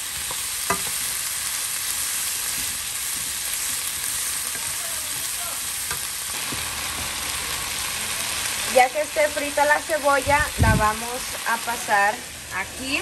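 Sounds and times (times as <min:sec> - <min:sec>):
onions sizzling in a pan: 0:00.0 - 0:13.0
spatula tapping a pan: 0:00.3 - 0:01.2.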